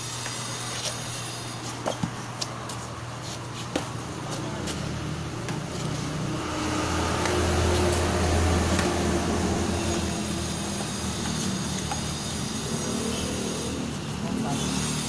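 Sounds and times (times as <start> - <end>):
low engine-like rumble: 4.0 - 14.6.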